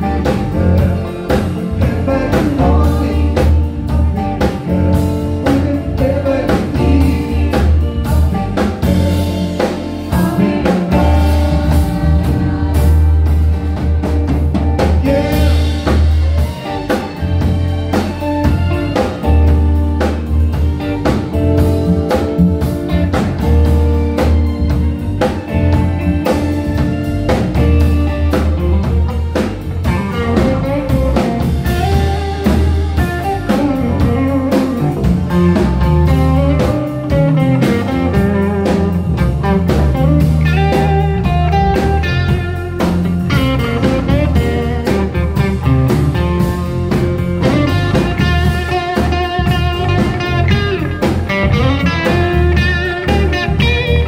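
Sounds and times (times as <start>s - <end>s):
bass guitar: 0.0s - 54.0s
drum kit: 0.0s - 54.0s
electric guitar: 0.0s - 54.0s
keyboards: 0.0s - 54.0s
woman singing: 5.4s - 14.4s.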